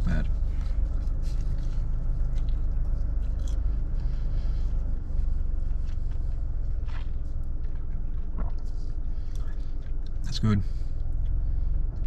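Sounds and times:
car cabin rumble: 0:00.0 - 0:12.0
person chewing food: 0:00.8 - 0:10.2.

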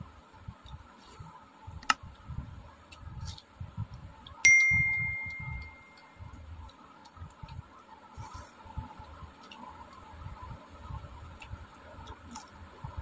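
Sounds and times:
eating rice by hand: 0:02.8 - 0:13.0
steel plate ringing: 0:04.5 - 0:06.0.

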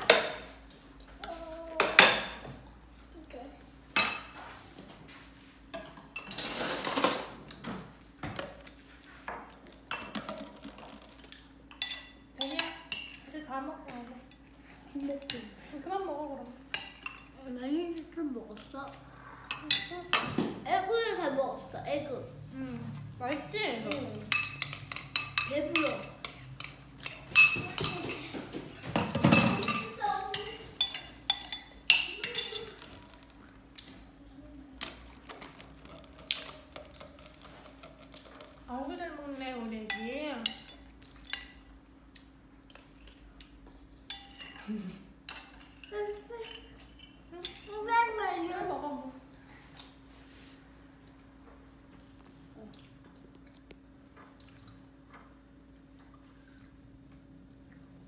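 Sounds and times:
metal spoons clinking on ceramic bowls: 0:03.9 - 0:04.4, 0:05.7 - 0:07.3, 0:09.9 - 0:10.4, 0:11.7 - 0:13.4, 0:16.7 - 0:17.4, 0:18.6 - 0:20.4, 0:23.3 - 0:32.9, 0:39.8 - 0:41.7, 0:44.1 - 0:44.7, 0:45.3 - 0:47.8
metal spoon clinking on bowl: 0:23.3 - 0:28.3, 0:39.9 - 0:41.5.

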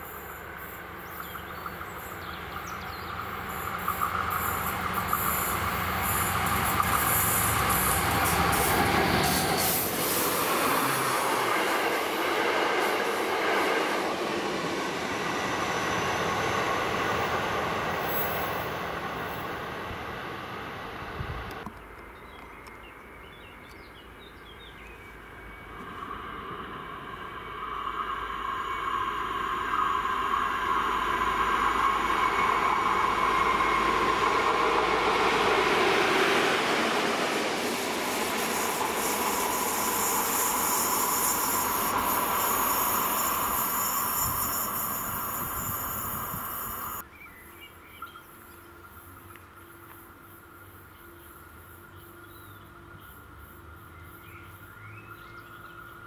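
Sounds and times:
diesel locomotives passing: 0:00.0 - 0:22.2, 0:22.9 - 0:47.1
steady whine: 0:01.7 - 0:21.7, 0:25.0 - 0:47.0.

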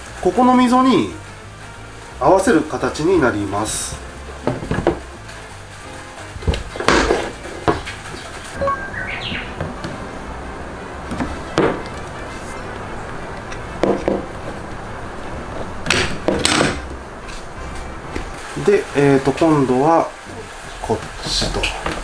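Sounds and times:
wooden chair bars knocking: 0:04.4 - 0:05.1, 0:06.4 - 0:08.2, 0:13.8 - 0:14.4.

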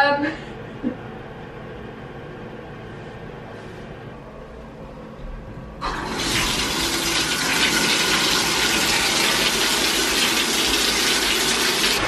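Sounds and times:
bathtub faucet running: 0:05.8 - 0:12.0.

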